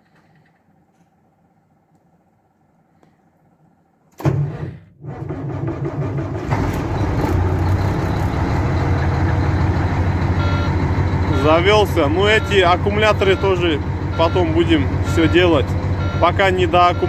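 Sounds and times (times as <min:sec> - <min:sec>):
starter motor cranking: 0:04.2 - 0:09.0
diesel truck engine running: 0:05.1 - 0:17.0.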